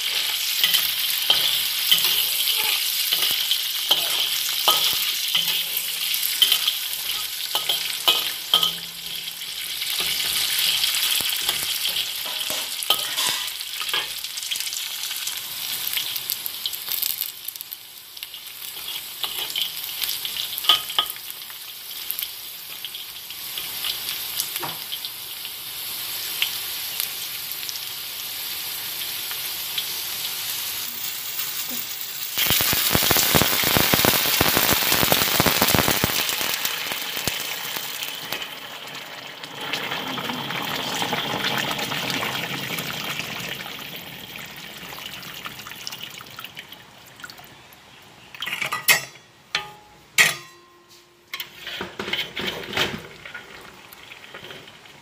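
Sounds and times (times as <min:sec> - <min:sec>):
food sizzling in oil: 0:00.0 - 0:47.2, 0:48.6 - 0:55.0
metal ladle knocking wok: 0:03.9 - 0:09.4, 0:48.6 - 0:51.5.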